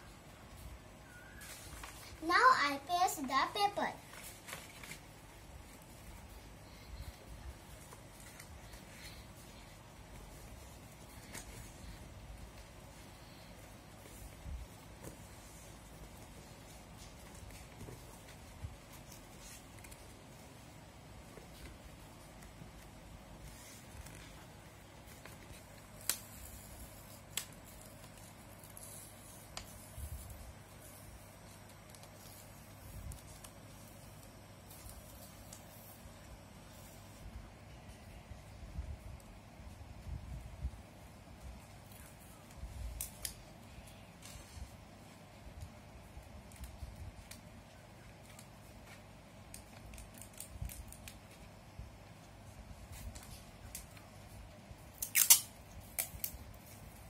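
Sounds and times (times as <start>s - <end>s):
paper and card handling: 0.4s - 38.2s, 46.0s - 51.6s
small scissors snipping: 55.0s - 56.4s.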